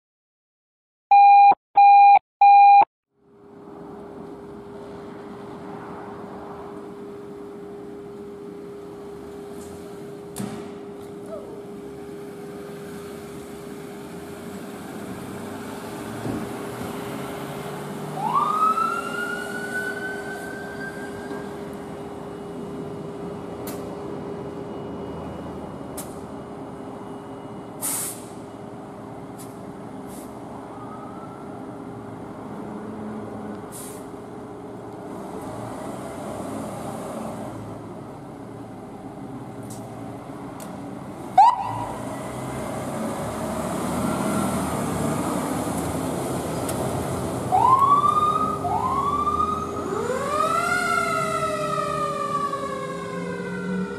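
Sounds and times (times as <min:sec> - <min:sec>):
emergency vehicle engines running: 0:03.2 - 0:53.9
air brake hiss: 0:27.8 - 0:28.4, 0:30.1 - 0:30.4, 0:33.7 - 0:34.2.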